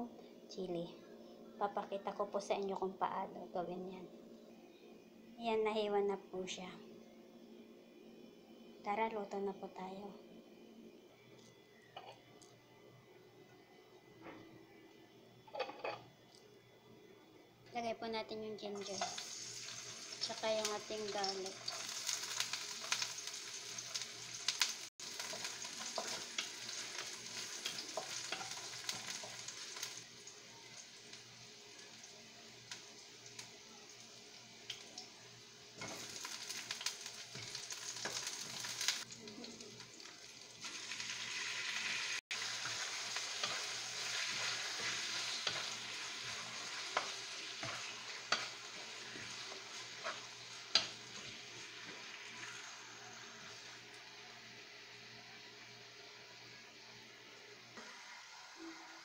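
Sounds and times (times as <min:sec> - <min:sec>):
food sizzling in hot oil: 0:18.7 - 0:59.0
wooden spatula scraping a pan: 0:42.6 - 0:52.6.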